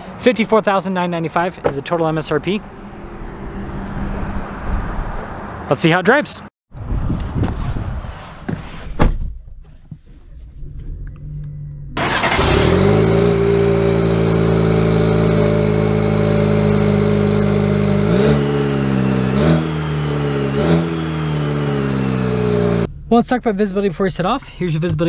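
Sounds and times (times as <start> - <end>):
truck engine starting and idling: 10.9 - 24.6
engine revving: 11.2 - 23.1.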